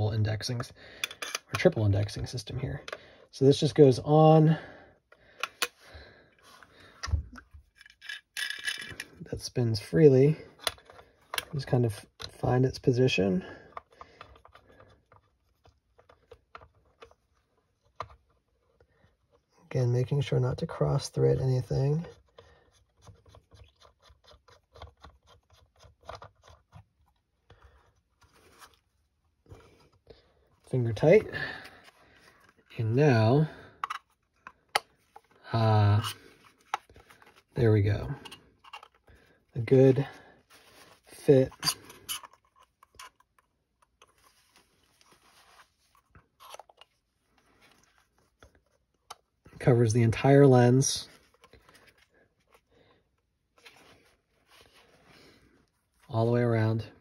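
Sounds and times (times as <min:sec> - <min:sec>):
hands handling a scope mount: 0:00.6 - 0:01.8, 0:05.1 - 0:05.8, 0:06.4 - 0:09.2, 0:10.5 - 0:12.8, 0:13.6 - 0:19.5, 0:22.1 - 0:49.6, 0:51.1 - 0:56.1.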